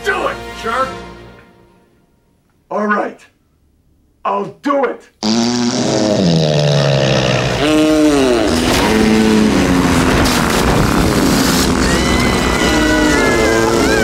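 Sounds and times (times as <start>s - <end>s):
comedic fart sound effect: 5.2s - 14.0s.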